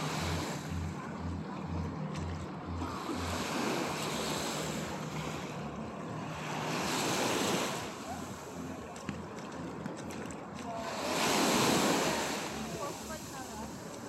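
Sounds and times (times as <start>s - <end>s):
small waves washing on sand: 2.8s - 14.0s.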